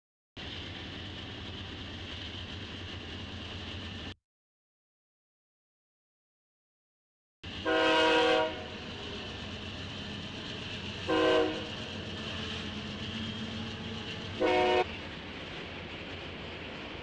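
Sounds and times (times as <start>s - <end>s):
train rumbling past: 0.4s - 4.2s, 7.4s - 17.0s
locomotive air horn: 7.6s - 8.7s, 11.1s - 11.7s, 14.4s - 14.9s.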